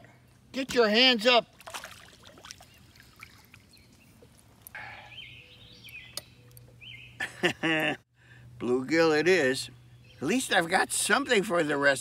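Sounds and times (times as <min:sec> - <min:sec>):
bird chirping: 0:02.5 - 0:07.4, 0:09.6 - 0:10.7.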